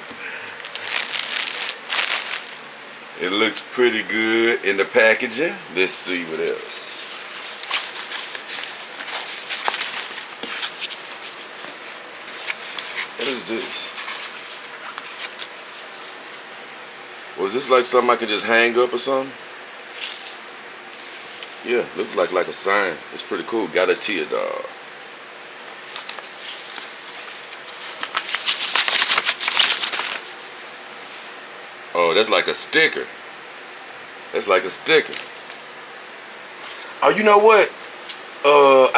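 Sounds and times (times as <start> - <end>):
packaging rustling and crinkling: 0.4 - 2.7, 6.4 - 16.2, 25.7 - 30.7.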